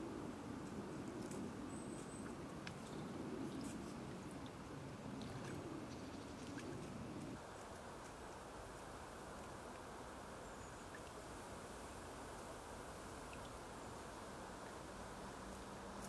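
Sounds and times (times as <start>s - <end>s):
swans dabbling clicks: 2.2s - 7.4s.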